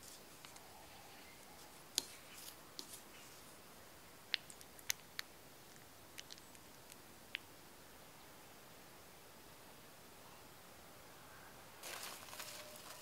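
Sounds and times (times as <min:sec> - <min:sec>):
faint hiss: 0:00.0 - 0:13.0.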